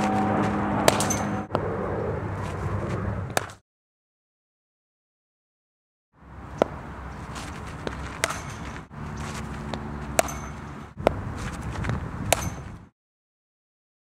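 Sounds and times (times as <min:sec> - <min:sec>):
outdoor background noise: 0:00.0 - 0:03.6, 0:06.2 - 0:12.9
cricket bat striking ball: 0:00.8 - 0:01.4, 0:07.7 - 0:08.9, 0:09.7 - 0:11.2, 0:12.3 - 0:12.8.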